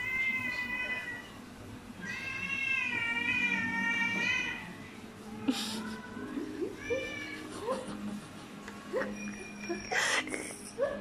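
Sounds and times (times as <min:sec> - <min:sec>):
cat yowling: 0:05.5 - 0:07.5.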